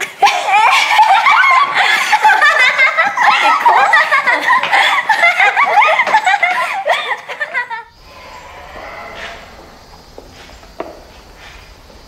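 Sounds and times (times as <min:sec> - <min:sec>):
young women laughing: 0:00.0 - 0:07.9.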